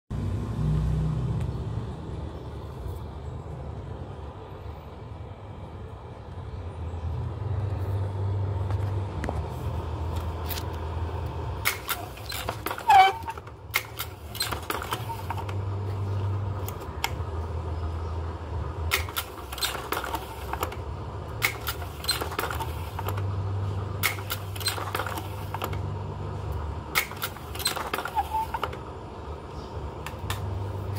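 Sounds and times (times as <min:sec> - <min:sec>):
slide-change mechanism clacking: 0:24.0 - 0:25.9, 0:26.5 - 0:28.8.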